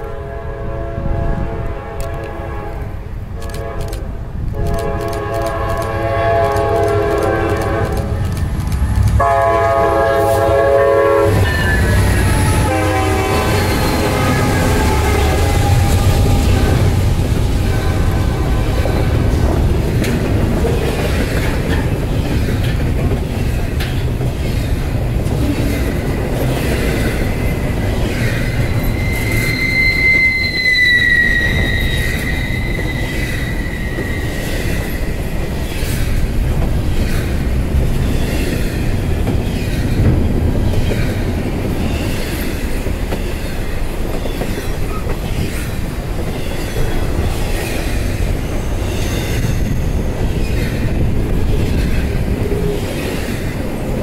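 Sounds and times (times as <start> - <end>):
train rumbling past: 0.0 - 54.0
metallic wheel squeal: 11.3 - 16.5, 28.1 - 35.2.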